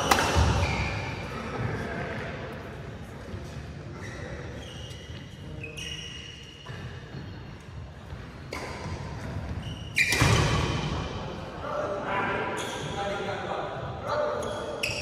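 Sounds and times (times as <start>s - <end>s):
rackets striking shuttlecocks: 0.0s - 0.8s
shoes squeaking on court: 0.0s - 1.4s, 3.4s - 10.6s, 12.5s - 13.0s, 14.4s - 15.0s.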